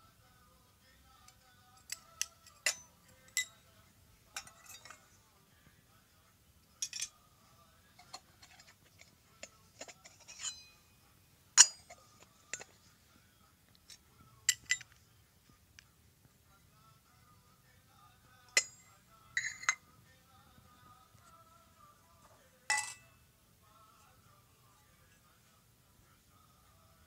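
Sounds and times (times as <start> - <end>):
metal toy pots clinking: 1.8 - 3.6, 4.3 - 5.1, 6.8 - 7.2, 8.0 - 10.8, 11.6 - 12.8, 14.5 - 15.0, 18.5 - 19.8, 22.7 - 23.2.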